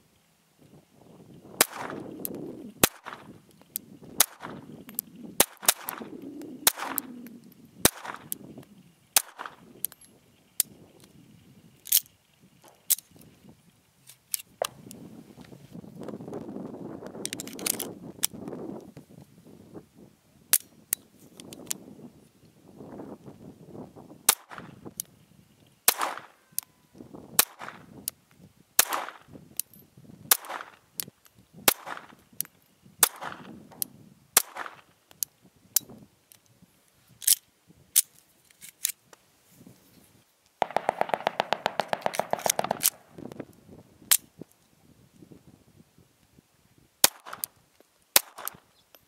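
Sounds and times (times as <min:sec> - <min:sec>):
pistol shots: 0:01.6 - 0:02.1, 0:02.8 - 0:03.4, 0:04.2 - 0:04.7, 0:05.4 - 0:07.2, 0:07.8 - 0:08.4, 0:09.2 - 0:09.6, 0:25.9 - 0:26.4, 0:27.4 - 0:27.9, 0:28.8 - 0:29.2, 0:30.3 - 0:30.8, 0:31.7 - 0:32.2, 0:33.0 - 0:33.5, 0:34.4 - 0:34.9, 0:40.6 - 0:43.4, 0:47.0 - 0:47.5, 0:48.2 - 0:48.6
rapid gunfire rattle: 0:40.6 - 0:43.3.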